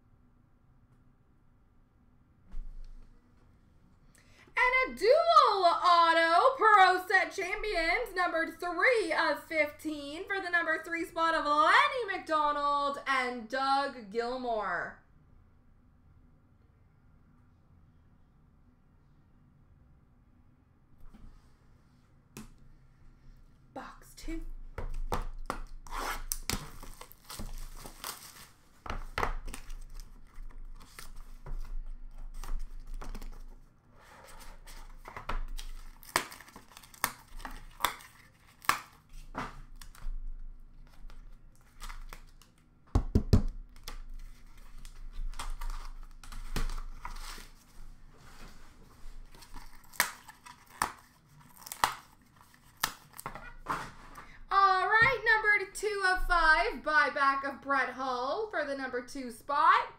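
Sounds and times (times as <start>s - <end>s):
wrappers crinkling and tearing: 25.8s - 33.6s, 34.7s - 40.0s, 40.8s - 42.7s, 43.7s - 47.8s, 49.2s - 53.6s.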